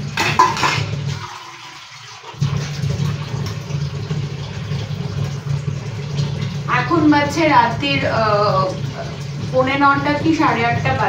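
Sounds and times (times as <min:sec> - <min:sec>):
tap water running into sink: 0:00.0 - 0:11.0
utensils clattering: 0:00.2 - 0:00.9.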